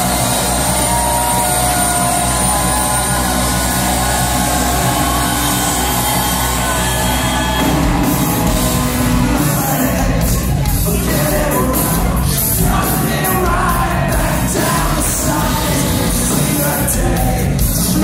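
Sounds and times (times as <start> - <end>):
crowd shouting: 0.0 - 16.8
electric guitars: 0.0 - 18.0
live rock band playing: 0.0 - 18.0
sung lead vocal: 9.1 - 18.0.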